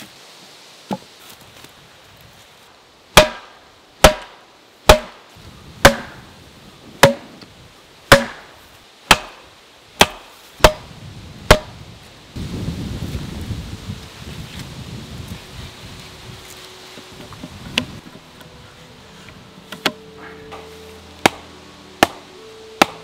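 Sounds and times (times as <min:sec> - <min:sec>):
mallet pounding wooden stakes: 0:03.2 - 0:04.3, 0:04.9 - 0:05.2, 0:05.8 - 0:06.2, 0:07.0 - 0:07.3, 0:08.1 - 0:08.5, 0:09.1 - 0:09.4, 0:10.0 - 0:10.8, 0:11.5 - 0:11.7, 0:21.2 - 0:22.2, 0:22.8 - 0:23.0.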